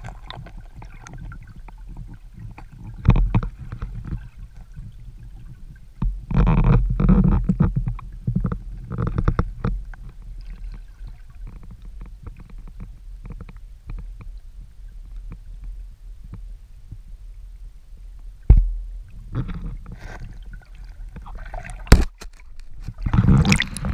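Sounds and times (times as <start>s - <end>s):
water rushes: 0.0s - 6.9s, 19.1s - 23.9s
small underwater clicks: 0.0s - 17.0s, 18.2s - 23.9s
muffled underwater rumbling: 0.0s - 23.9s.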